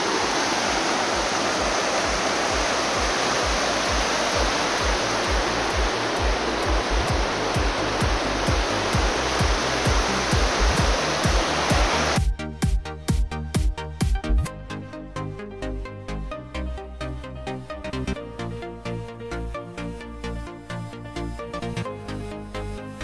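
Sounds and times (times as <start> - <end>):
river rushing over rocks: 0.0 - 12.2
background music with low beat: 2.5 - 23.0.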